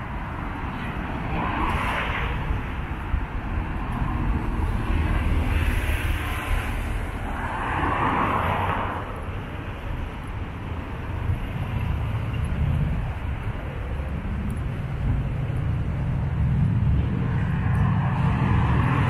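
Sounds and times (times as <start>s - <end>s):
road traffic hum: 0.0s - 19.0s
vehicle passing: 11.8s - 19.0s.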